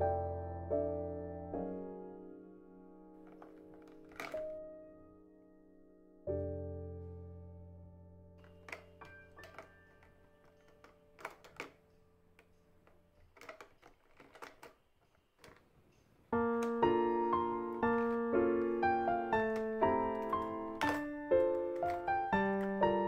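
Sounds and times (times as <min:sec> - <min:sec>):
piano music: 0:00.0 - 0:13.0, 0:16.3 - 0:23.0
pens clicking into plastic holder: 0:03.2 - 0:04.5, 0:08.4 - 0:15.7, 0:16.4 - 0:23.0.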